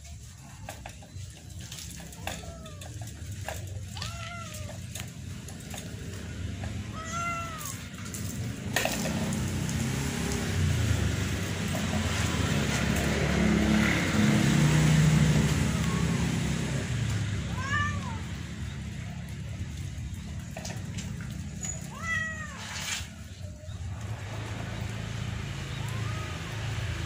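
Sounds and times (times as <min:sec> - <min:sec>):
cat meowing: 0:03.9 - 0:04.9, 0:06.9 - 0:07.9, 0:17.4 - 0:18.3, 0:21.8 - 0:22.8, 0:25.7 - 0:26.8.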